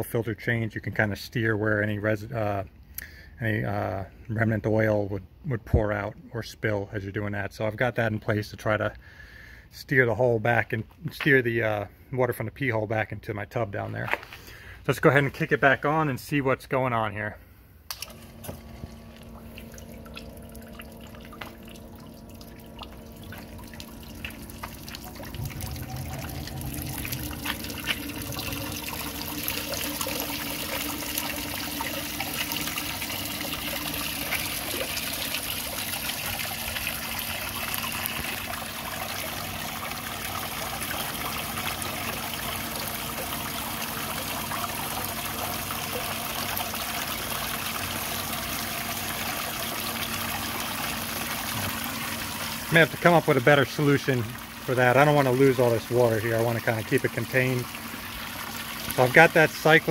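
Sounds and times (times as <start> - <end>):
pump humming: 17.9 - 59.9
water trickling and splashing: 18.0 - 59.9.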